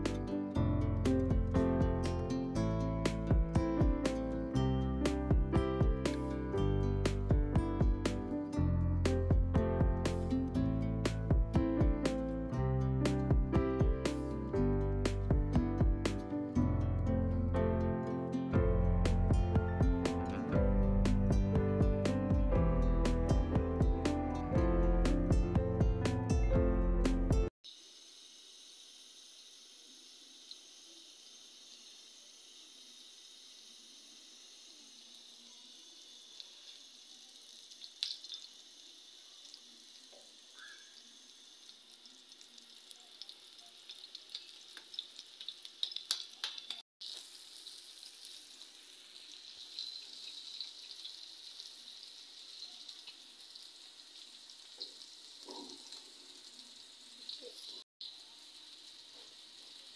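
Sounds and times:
patties sizzling in oil: 0.0s - 8.2s, 27.6s - 59.9s.

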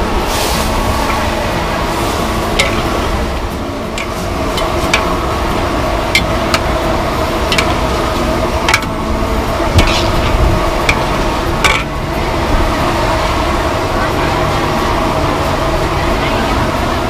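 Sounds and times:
steady background noise: 0.0s - 17.0s
metal ladles clinking on wok: 2.6s - 3.0s, 7.4s - 8.0s, 8.6s - 8.9s, 10.8s - 11.9s.

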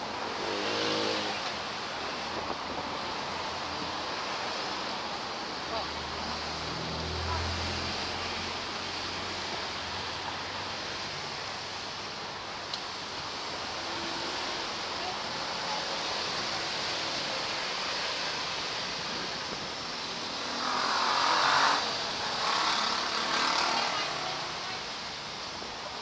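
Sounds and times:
street traffic: 0.0s - 26.0s
vehicle passing close: 0.3s - 1.5s.

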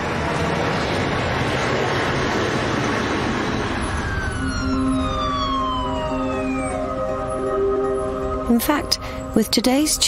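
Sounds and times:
road traffic: 0.0s - 10.0s
siren falling in pitch: 3.7s - 9.4s.

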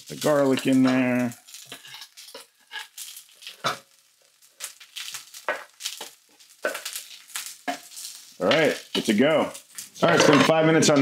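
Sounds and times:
faint sizzle from pan: 0.0s - 11.0s.

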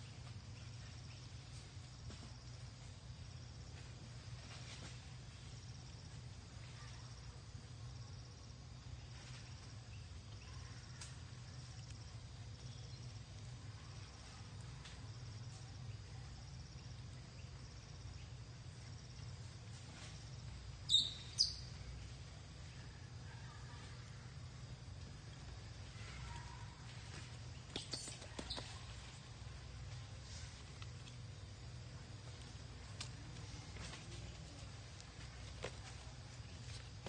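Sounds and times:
insects chirring: 0.0s - 37.0s
low steady rumble: 0.0s - 37.0s
loud high chirps: 20.9s - 21.6s.

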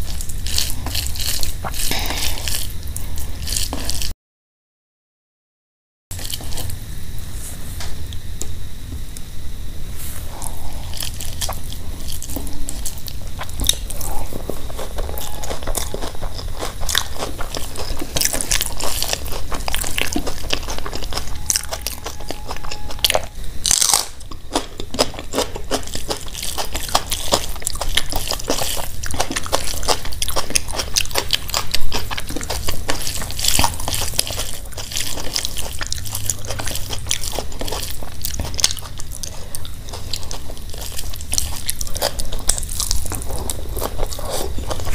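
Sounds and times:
wet chewing: 0.0s - 4.1s, 6.1s - 6.8s, 10.3s - 44.9s.

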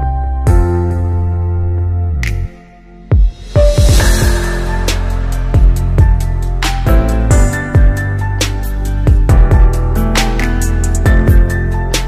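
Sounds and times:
drum beat with cymbals: 3.1s - 8.0s.

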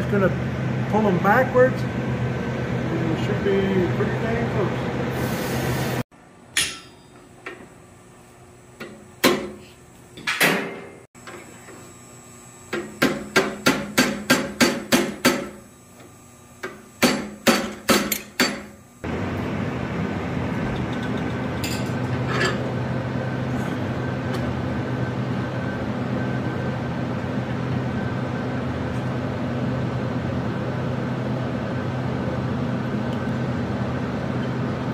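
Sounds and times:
hammer striking steel on anvil: 6.5s - 7.3s, 12.7s - 15.6s, 16.6s - 18.7s.

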